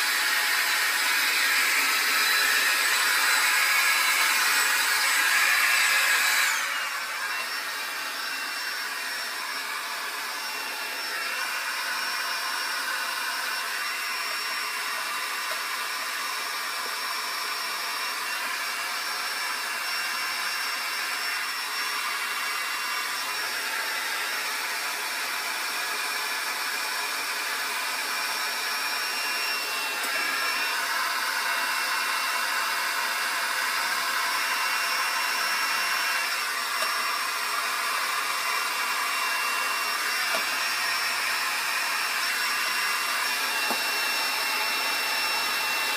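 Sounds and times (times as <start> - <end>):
hair dryer running: 0.0 - 45.9.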